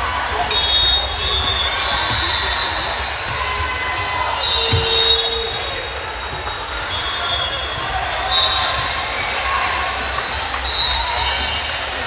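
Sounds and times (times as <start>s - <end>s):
volleyball thumping: 1.2s - 5.2s
shoes squeaking on floor: 4.4s - 6.7s.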